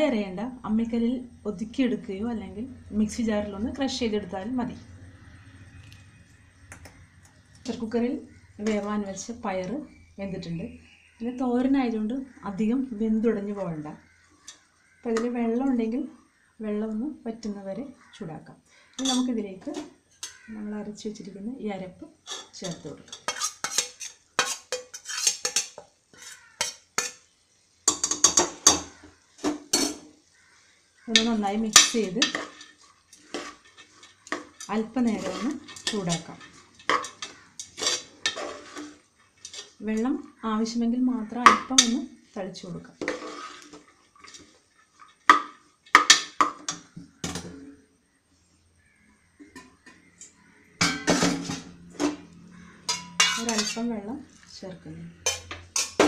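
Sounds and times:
steel spoon scraping and clinking: 19.0 - 20.5, 22.2 - 27.3, 27.9 - 29.0, 29.7 - 30.1, 31.1 - 39.8, 43.0 - 46.9, 49.6 - 53.9, 55.2 - 56.0.

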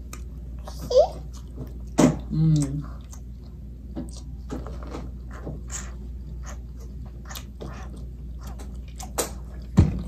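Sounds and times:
chewing with wet mouth smacks: 0.0 - 10.0.

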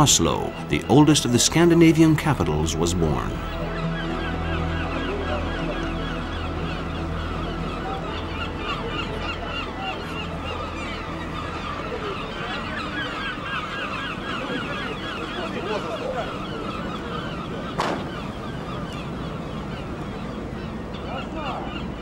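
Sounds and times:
flock of birds calling: 0.0 - 22.0
sharp knock: 17.8 - 18.1.

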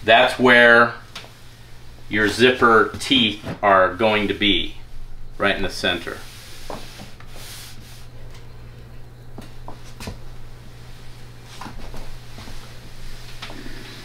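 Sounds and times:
low steady hum: 0.0 - 14.0
iron sliding on fabric: 6.0 - 8.1.

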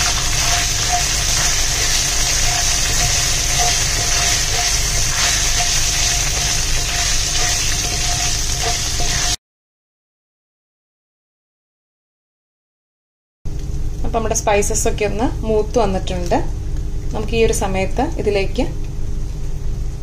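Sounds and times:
spatula stirring in wok: 0.0 - 9.4
spices sizzling in hot oil: 0.0 - 9.4.

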